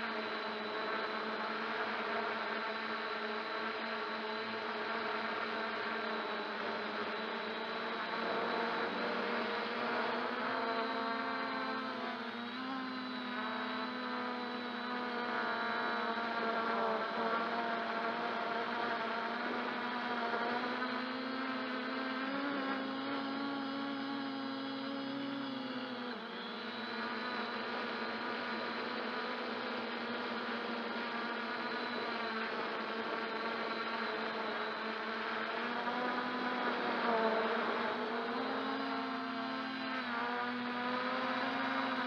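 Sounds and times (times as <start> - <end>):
drone propellers buzzing: 0.0 - 42.0.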